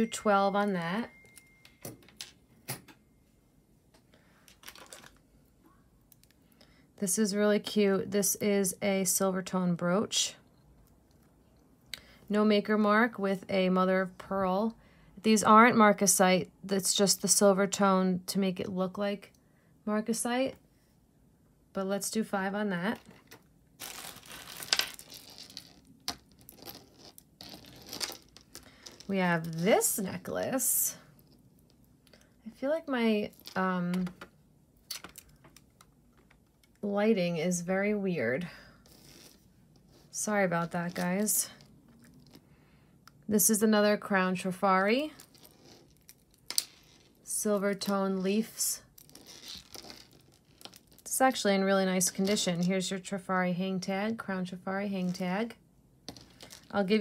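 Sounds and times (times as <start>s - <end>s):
rustling: 22.9s - 30.3s.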